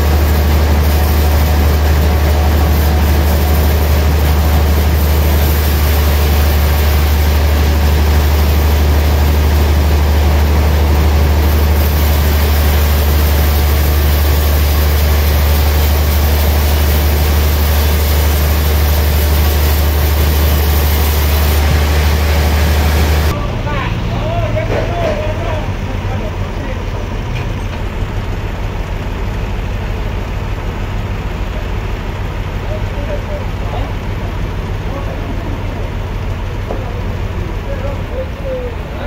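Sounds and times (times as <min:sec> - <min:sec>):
band saw cutting log: 0:00.0 - 0:23.4.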